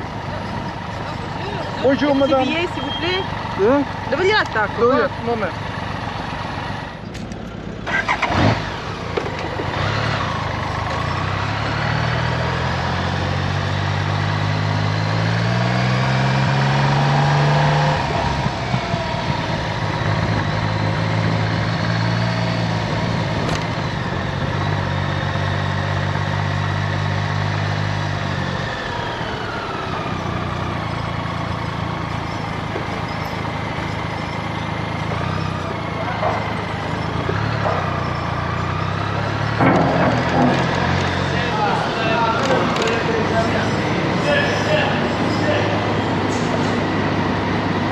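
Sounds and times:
car engine running: 14.8 - 47.9.

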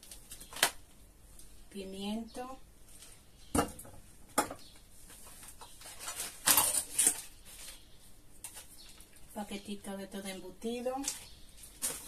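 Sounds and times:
plastic packaging crinkling: 0.0 - 0.9, 5.2 - 9.3, 10.8 - 12.0.

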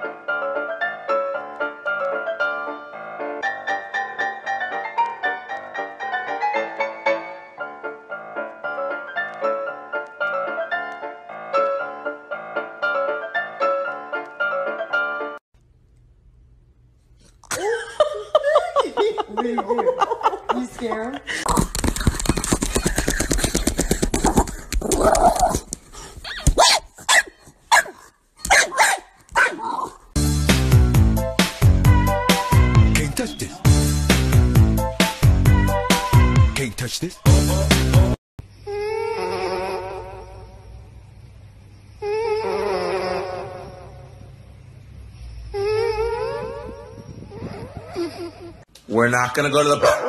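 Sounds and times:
piano music: 0.0 - 15.4, 30.2 - 36.6
small dog yipping: 26.2 - 30.0
music with steady beat: 30.2 - 36.6, 37.2 - 38.2.

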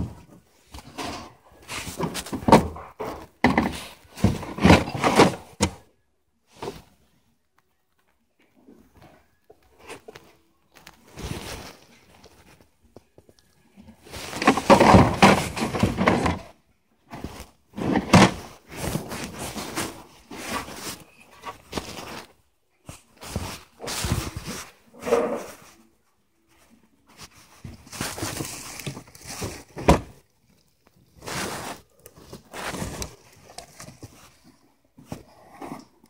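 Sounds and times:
plastic cases knocking and scraping: 0.0 - 5.8, 14.1 - 22.2, 27.6 - 30.2.

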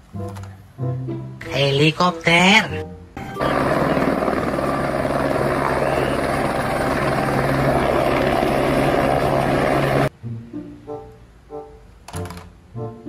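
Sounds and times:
helicopter hovering: 3.2 - 10.1.

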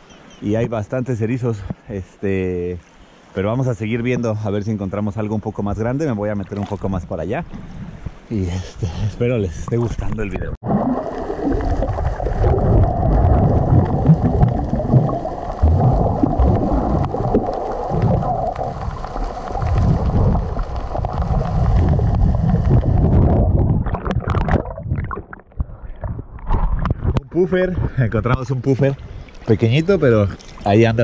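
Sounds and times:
water splashing and crackling: 0.0 - 8.3, 9.0 - 27.6, 28.2 - 31.0
water sloshing: 5.8 - 8.3, 9.6 - 27.2, 28.6 - 31.0
muffled underwater rumble: 8.8 - 30.4.

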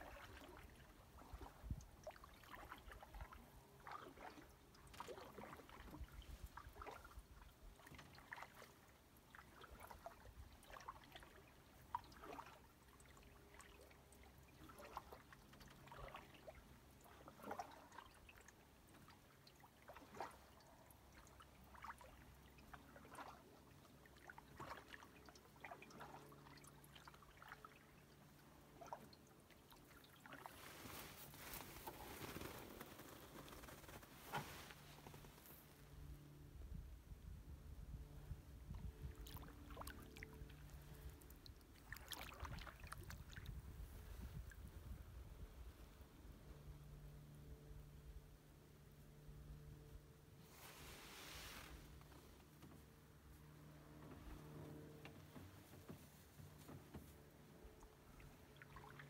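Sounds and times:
paddle splashes: 0.0 - 33.4, 38.7 - 45.0, 50.4 - 59.0.

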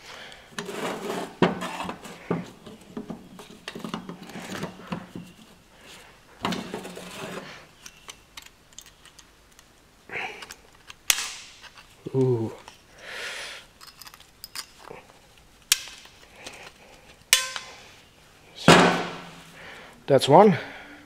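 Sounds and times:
metal scraping on brake shoe: 0.6 - 8.1.

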